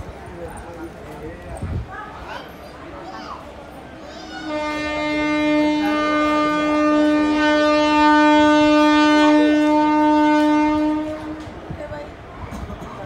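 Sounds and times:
locomotive horn blast: 4.4 - 11.6.

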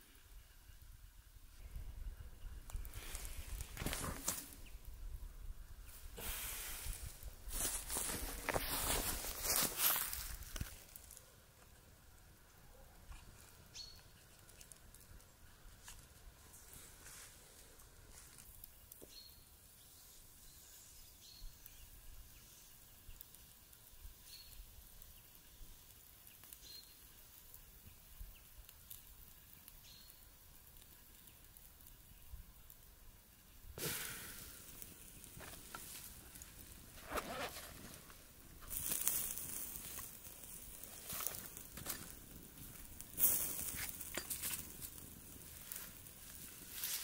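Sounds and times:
rustling of leaves and fabric: 2.6 - 5.2, 5.8 - 12.0, 12.7 - 19.4, 33.7 - 47.0.

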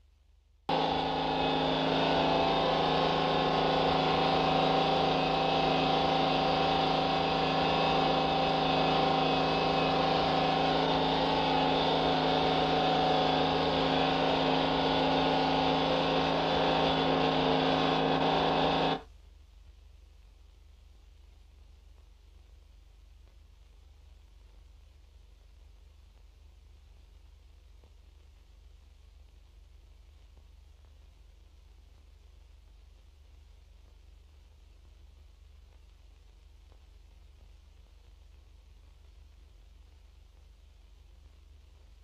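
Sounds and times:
loud drone with held tones: 0.7 - 19.0.

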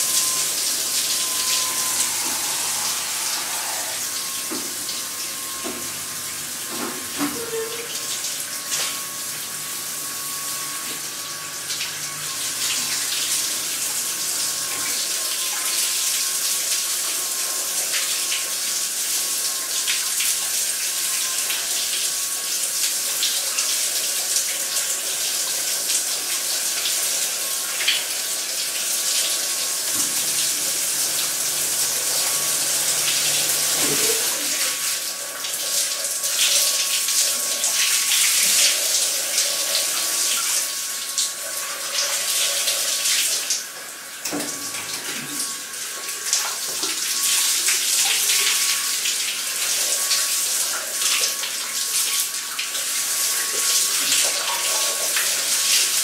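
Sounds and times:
spinning brush whine: 0.0 - 6.6
shower water spraying: 0.0 - 56.0.

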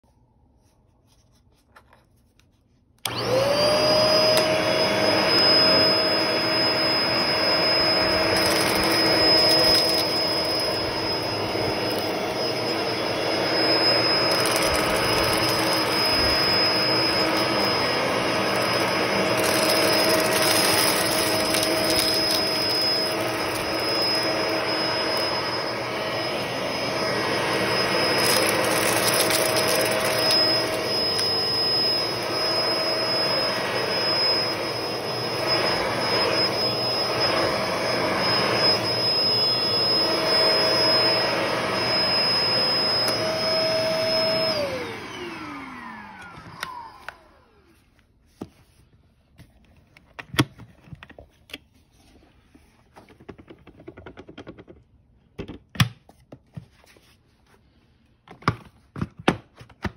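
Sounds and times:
stick vacuum motor whine: 3.0 - 47.8.

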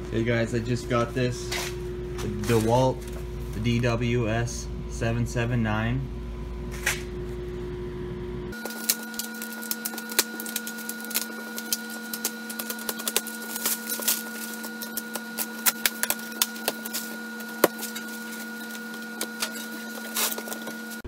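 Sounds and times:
steady low hum: 0.0 - 21.0
plastic shrink wrap crinkling: 8.6 - 21.0.

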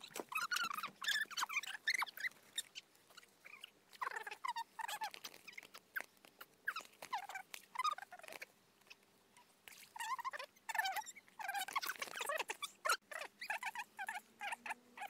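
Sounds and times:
small animal chirping and squeaking: 0.0 - 15.0.

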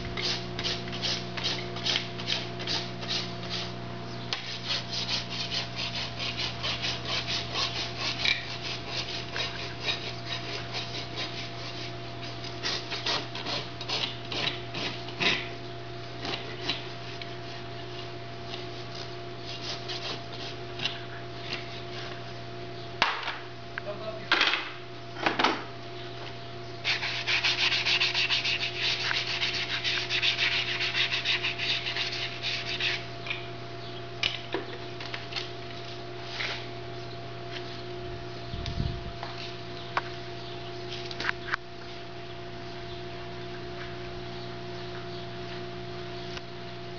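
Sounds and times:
rasp filing hoof: 0.2 - 3.7, 4.4 - 15.5, 19.4 - 20.6, 26.8 - 33.1.

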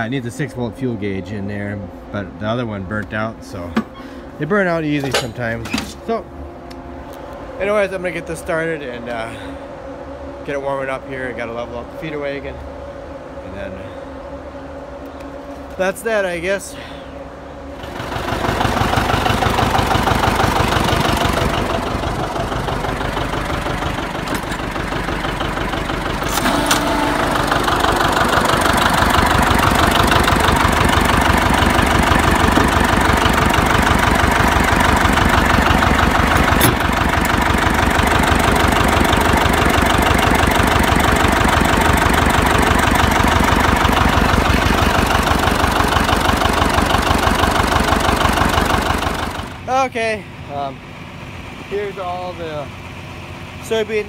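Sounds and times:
tractor engine putt-putt: 17.8 - 49.7.

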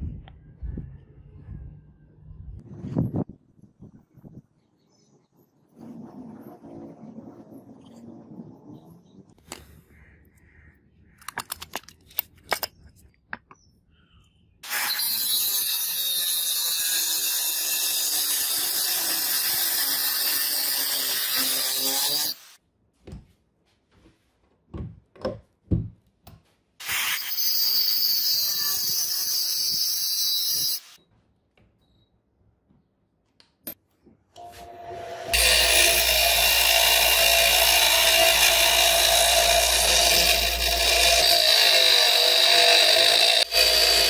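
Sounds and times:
angle grinder cutting steel: 14.6 - 22.6, 26.8 - 31.0, 34.6 - 44.0.

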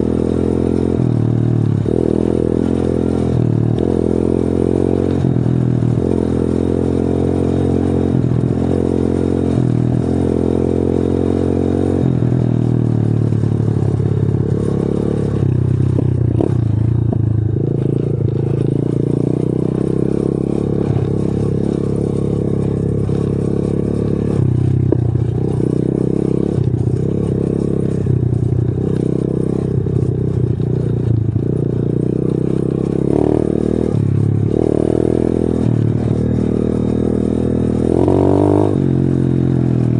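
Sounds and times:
motorbike engine revving: 0.0 - 39.9.

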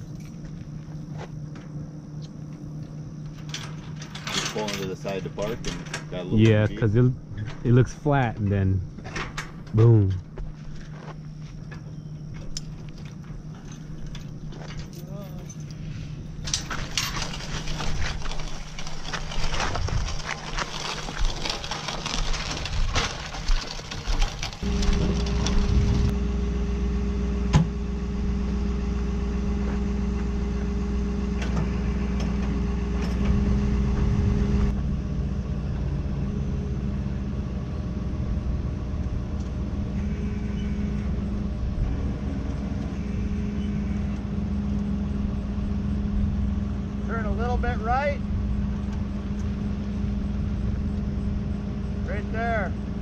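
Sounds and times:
vehicle engine idling: 23.2 - 53.0.

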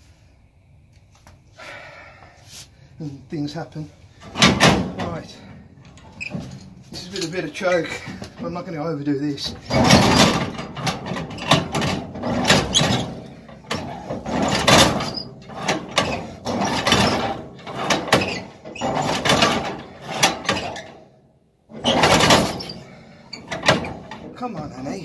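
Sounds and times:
engine cranked by hand swishing: 9.4 - 21.0.

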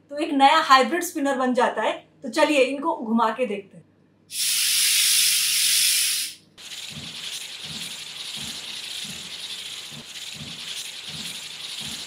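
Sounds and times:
breath blown through straw spinner: 4.3 - 12.0
rattly hiss with low pulses: 6.6 - 12.0.

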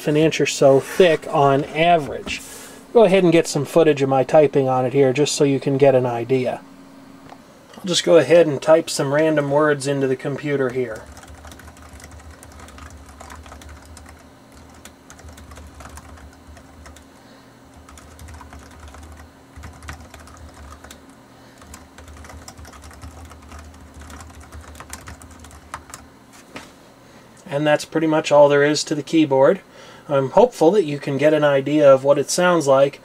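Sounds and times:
low hum: 0.0 - 26.0
keyboard keys clicking: 10.4 - 17.1, 17.8 - 21.0, 21.6 - 26.0.

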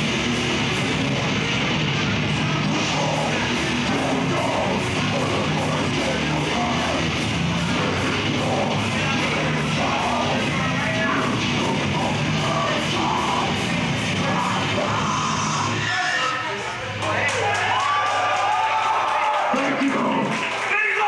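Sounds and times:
death metal band playing live: 0.0 - 16.3.

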